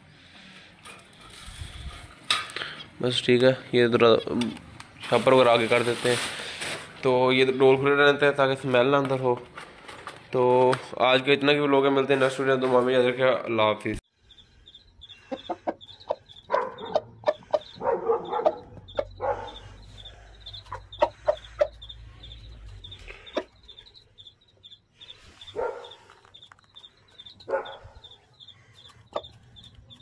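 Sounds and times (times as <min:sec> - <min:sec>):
faint high chirping: 0:14.1 - 0:30.0
rooster clucking: 0:15.0 - 0:24.0, 0:26.8 - 0:30.0.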